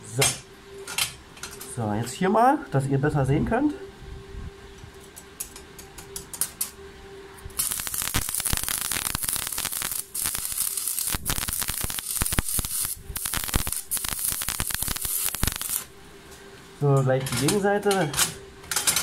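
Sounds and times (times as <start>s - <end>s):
welding arc crackling: 7.5s - 16.3s.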